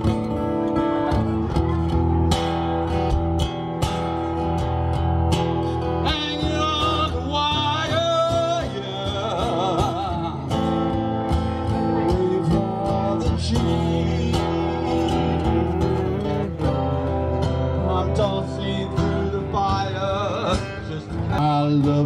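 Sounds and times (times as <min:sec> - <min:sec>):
acoustic guitar strumming: 0:00.0 - 0:22.0
man singing: 0:05.8 - 0:22.0.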